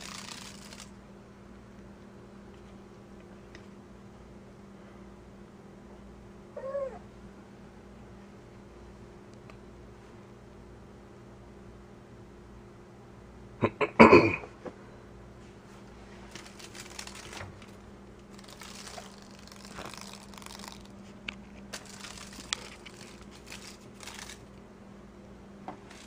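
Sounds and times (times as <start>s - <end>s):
crinkly rustles: 0.0s - 0.9s, 15.4s - 24.6s, 25.8s - 26.0s.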